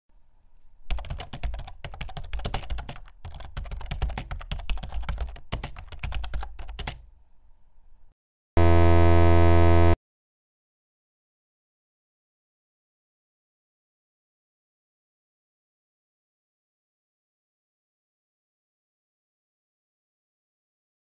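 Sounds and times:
typing on a keyboard: 0:00.9 - 0:07.0
harsh electronic buzz: 0:08.6 - 0:10.0.

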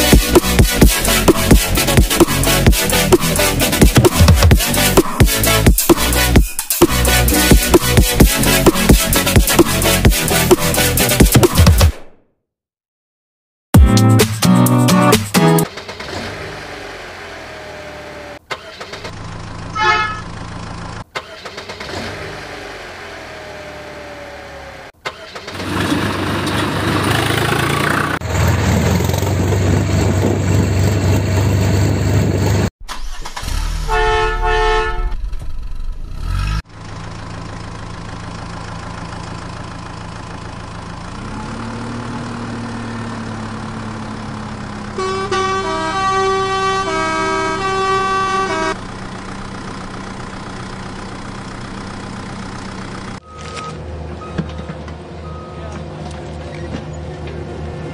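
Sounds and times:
truck engine running: 0:00.0 - 0:11.9, 0:13.8 - 0:57.9
truck horn honks: 0:19.7 - 0:20.4, 0:33.7 - 0:35.3, 0:44.8 - 0:49.0.

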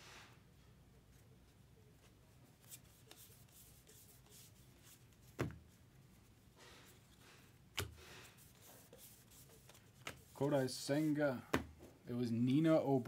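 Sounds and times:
cards rustling and sliding: 0:02.5 - 0:05.5, 0:06.8 - 0:11.6.

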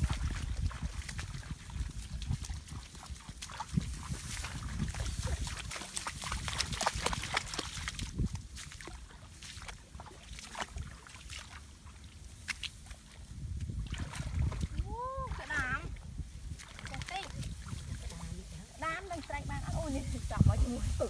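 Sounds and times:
shallow water splashing: 0:00.0 - 0:21.0.

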